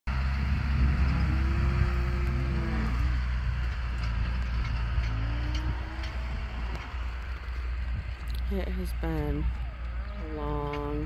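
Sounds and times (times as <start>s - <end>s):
tractor engine humming: 0.1s - 11.0s
cattle mooing: 0.9s - 3.4s, 4.9s - 7.5s.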